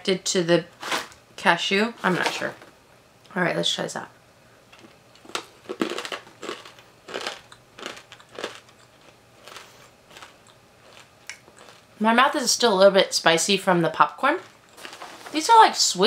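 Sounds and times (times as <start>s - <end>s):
chewing crunchy snack: 4.8s - 11.9s, 14.4s - 15.2s.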